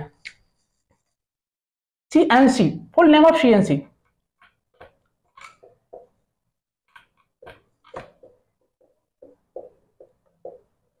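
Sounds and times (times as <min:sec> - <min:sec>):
marker writing on whiteboard: 0:04.0 - 0:06.2, 0:06.9 - 0:11.0.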